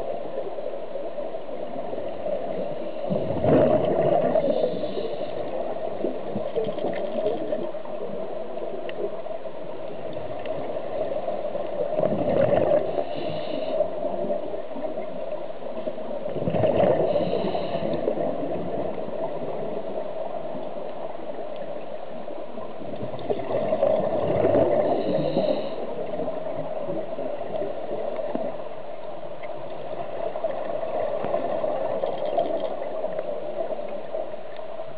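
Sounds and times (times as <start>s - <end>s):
underwater hum: 0.0s - 34.9s
bubbles gurgling underwater: 3.1s - 4.7s, 10.1s - 13.4s, 16.2s - 20.6s, 22.6s - 28.6s.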